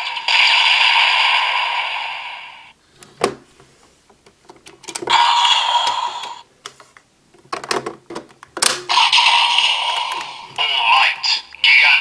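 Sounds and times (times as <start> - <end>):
toy electronic sound effect: 5.1 - 6.4, 8.9 - 12.0.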